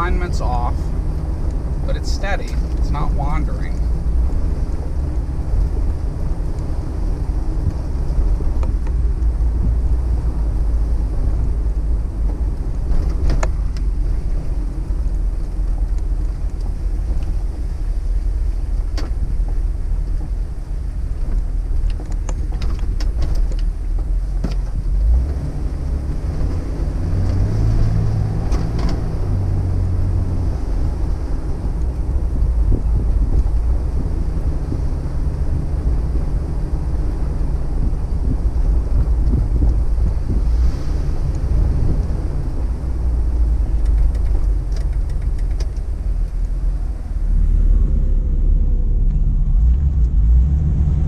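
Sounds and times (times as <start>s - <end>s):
car engine and road noise: 0.0s - 51.0s
sharp clicks or rattles: 43.8s - 46.5s.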